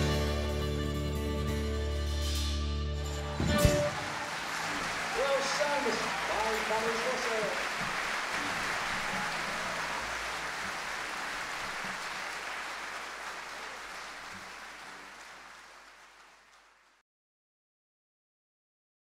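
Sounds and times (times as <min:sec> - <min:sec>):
audience applauding: 0:03.1 - 0:17.0.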